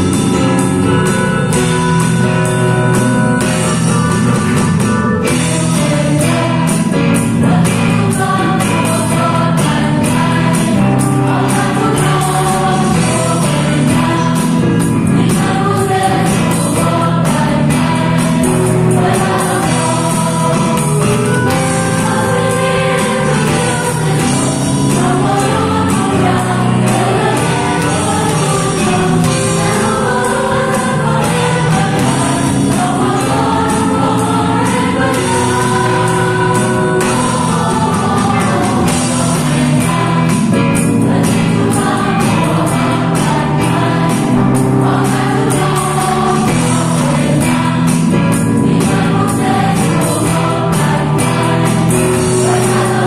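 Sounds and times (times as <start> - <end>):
choir of voices: 0.0 - 53.0
electric bass: 0.0 - 53.0
piano and keyboard: 0.0 - 53.0.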